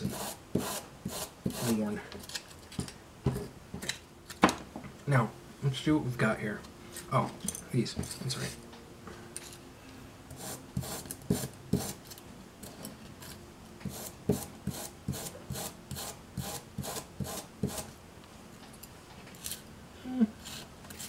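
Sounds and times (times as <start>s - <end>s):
hand tool scraping wood strip: 0.0s - 1.8s, 13.9s - 17.9s.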